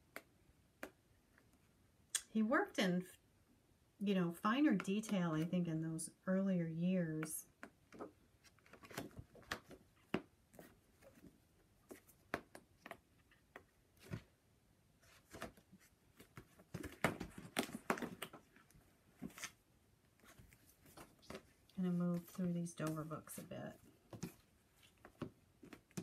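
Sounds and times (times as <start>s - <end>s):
paper books tapping and slapping: 7.2s - 14.3s, 15.2s - 18.6s, 20.2s - 26.0s.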